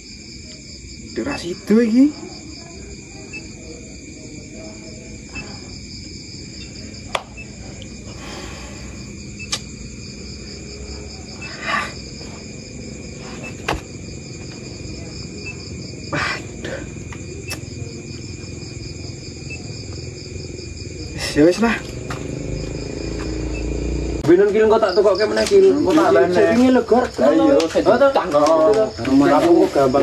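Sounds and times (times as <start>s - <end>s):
crickets chirping: 0.0s - 30.0s
sharp clicks: 9.4s - 9.7s.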